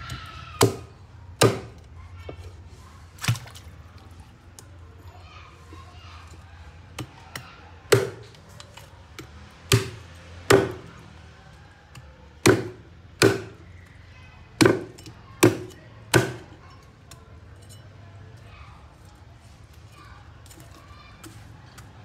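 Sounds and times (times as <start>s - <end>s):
cleaver chopping ribs on wood: 0.6s - 1.8s, 7.0s - 8.4s, 9.1s - 10.9s, 12.4s - 13.6s, 14.6s - 16.4s.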